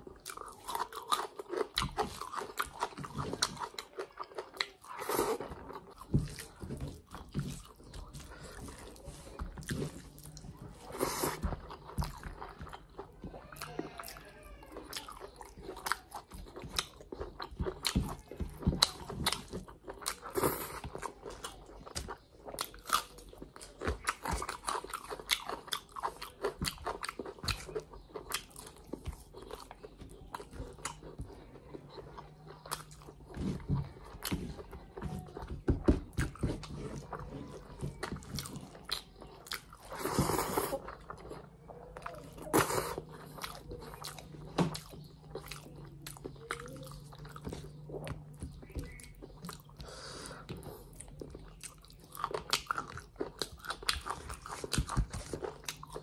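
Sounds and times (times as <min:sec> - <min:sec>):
person chewing food: 0:00.0 - 0:56.0.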